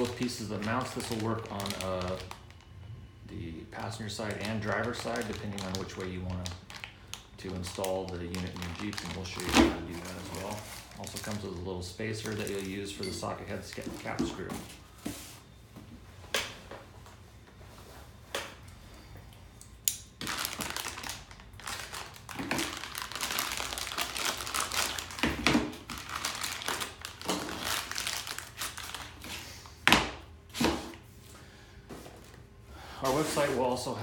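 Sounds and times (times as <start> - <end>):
plastic bag crinkling: 0.0 - 2.7, 3.7 - 14.7, 20.2 - 29.6.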